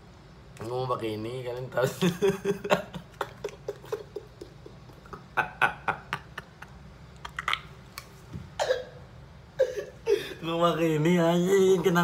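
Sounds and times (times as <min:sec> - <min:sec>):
man laughing: 0:01.8 - 0:06.9.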